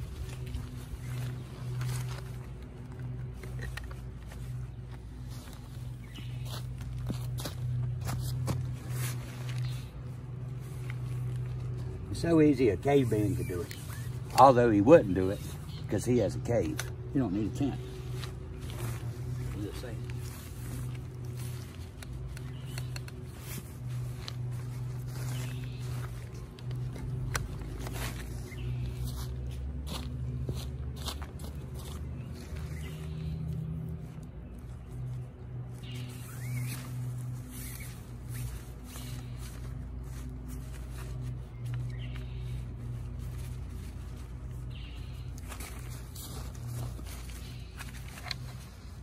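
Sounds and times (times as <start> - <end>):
tent poles clicking: 0.0 - 12.0, 13.0 - 29.0, 32.1 - 49.0
tent fabric rustling: 0.0 - 12.1, 17.6 - 30.4, 35.5 - 49.0
steady low hum: 0.0 - 49.0.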